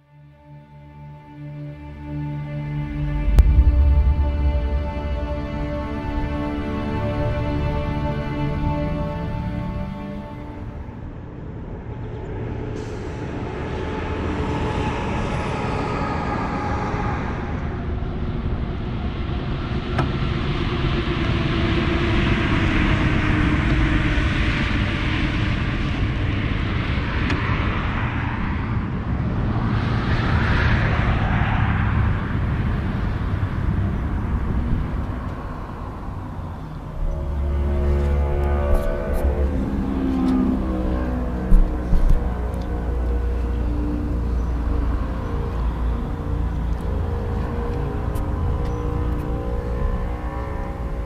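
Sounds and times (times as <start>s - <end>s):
highway traffic passing: 1.1s - 18.3s, 27.6s - 51.0s
deep loud rumble: 1.5s - 11.0s, 27.6s - 51.0s.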